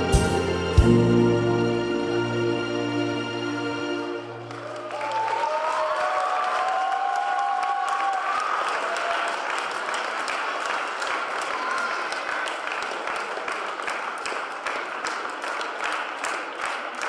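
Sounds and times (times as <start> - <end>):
audience applauding: 4.2 - 17.0.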